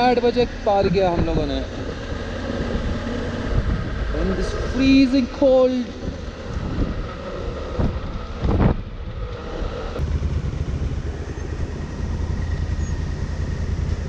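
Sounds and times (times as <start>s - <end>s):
wind rushing over microphone: 0.0s - 14.0s
motorcycle engine running: 5.9s - 14.0s.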